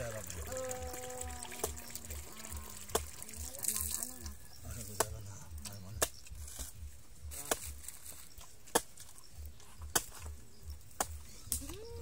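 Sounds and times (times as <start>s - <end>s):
machete chopping coconut husk: 4.8s - 11.7s.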